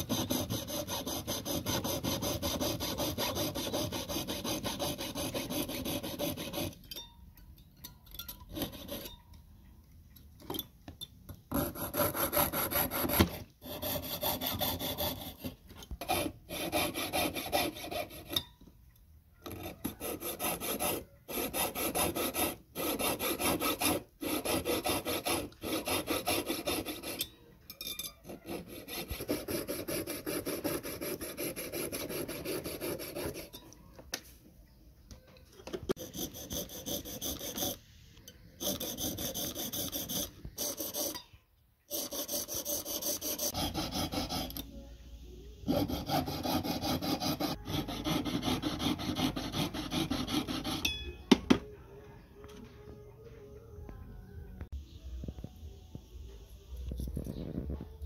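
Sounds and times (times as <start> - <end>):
piercing saw rasping through metal: 0.0 - 6.9, 8.5 - 9.2, 11.5 - 18.5, 19.4 - 27.4, 28.1 - 33.6, 35.9 - 37.8, 38.6 - 41.3, 41.9 - 44.7, 45.7 - 51.0.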